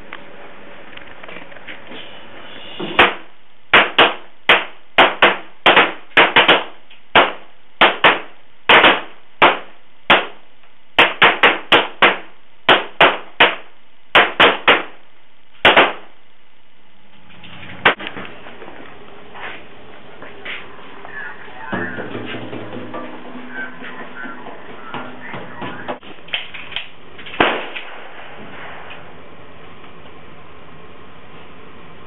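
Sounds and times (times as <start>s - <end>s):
pistol shots: 3.0s - 10.4s, 11.0s - 15.0s, 15.6s - 16.1s, 27.3s - 27.9s.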